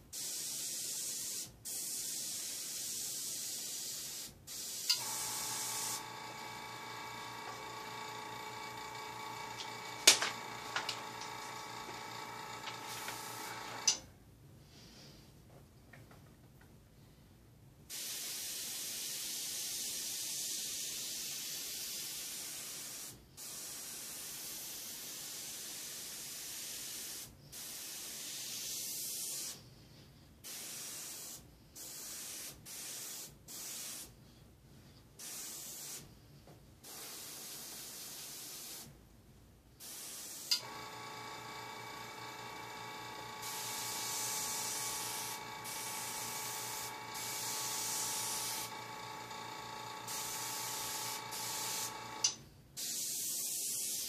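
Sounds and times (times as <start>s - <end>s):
airbrush spraying hiss: 0.0s - 8.0s, 12.7s - 14.0s, 17.9s - 29.6s, 30.4s - 34.2s, 35.2s - 36.2s, 36.8s - 38.9s, 39.8s - 40.8s, 43.4s - 49.4s, 50.0s - 54.0s
air compressor motor hum: 4.9s - 14.0s, 40.5s - 52.4s.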